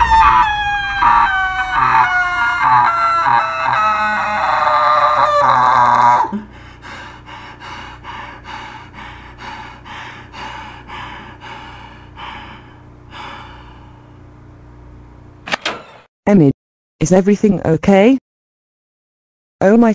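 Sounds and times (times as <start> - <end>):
cartoon girl screaming: 0.0 - 6.4
quick panting breaths: 6.4 - 14.2.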